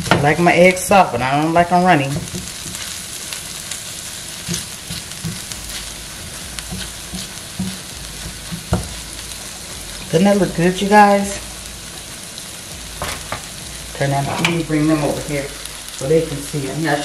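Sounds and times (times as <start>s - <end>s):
eggs sizzling in a skillet: 0.0s - 17.0s
spatula scraping a pan: 4.0s - 9.0s.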